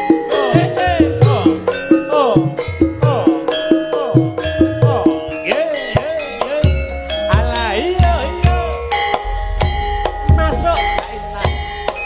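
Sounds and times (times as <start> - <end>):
ringing bronze metallophones: 0.0 - 12.0
hand drums with pitch slides: 8.5 - 12.0.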